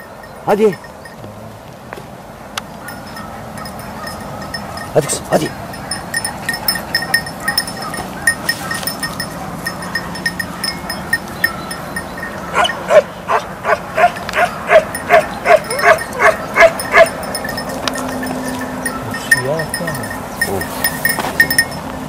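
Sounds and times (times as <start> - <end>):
light metallic tinkling: 0.0 - 1.6, 2.8 - 13.0, 14.0 - 22.0
dog barking in high yelps: 2.8 - 19.6.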